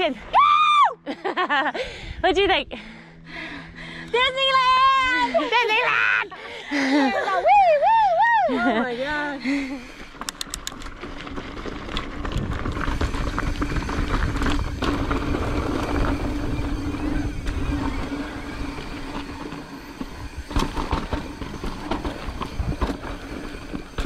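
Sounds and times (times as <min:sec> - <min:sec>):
bike rattling: 0:06.7 - 0:24.0.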